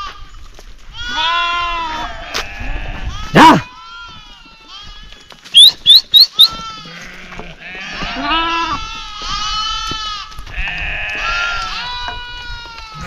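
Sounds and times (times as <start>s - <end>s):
sheep bleating: 0.9s - 5.3s, 6.1s - 13.0s
short sharp whistles: 5.6s - 6.5s.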